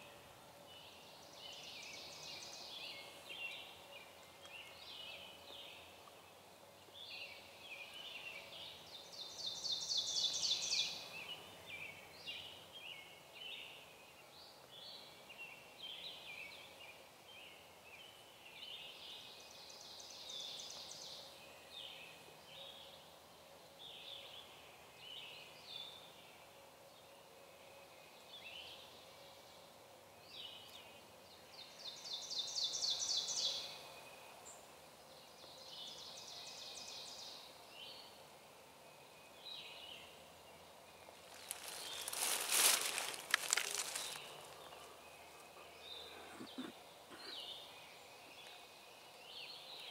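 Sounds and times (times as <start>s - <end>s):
songbirds chirping: 0.0s - 49.9s
loud rustling crackle: 41.1s - 44.8s.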